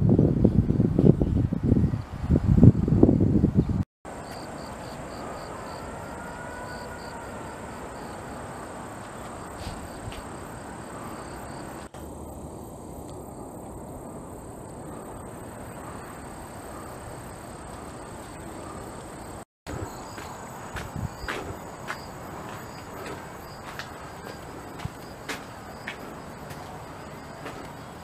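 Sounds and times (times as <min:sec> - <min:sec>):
wind noise on microphone: 0:00.0 - 0:03.9, 0:20.6 - 0:25.3.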